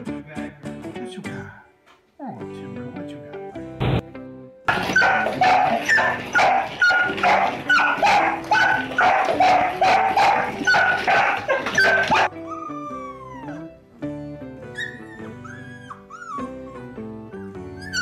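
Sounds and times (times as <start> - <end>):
soft music: 0.0 - 18.0
dog barking fast: 4.7 - 12.3
puppy howling: 4.7 - 13.8, 14.8 - 17.0, 17.7 - 18.0.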